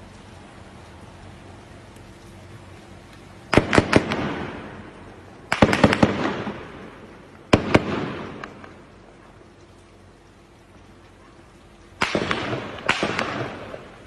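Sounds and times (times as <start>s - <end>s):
bursts of sharp echoing bangs: 3.5s - 8.8s, 12.0s - 14.0s.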